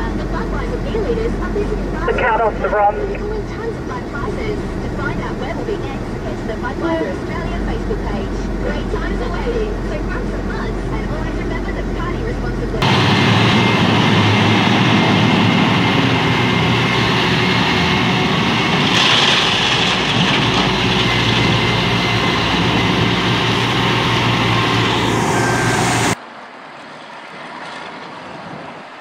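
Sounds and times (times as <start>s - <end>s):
large diesel engines running: 0.0s - 26.2s
distant machine: 1.1s - 26.2s.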